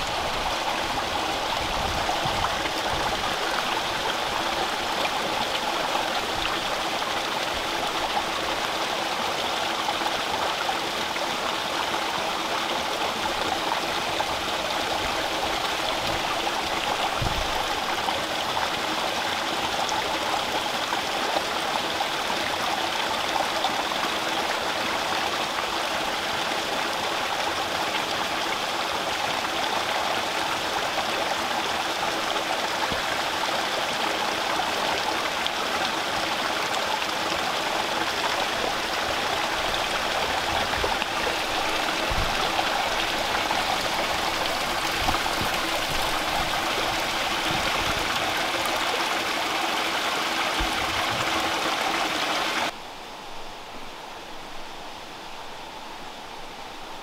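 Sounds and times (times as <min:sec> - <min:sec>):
water splashing into pond: 0:30.5 - 0:52.8.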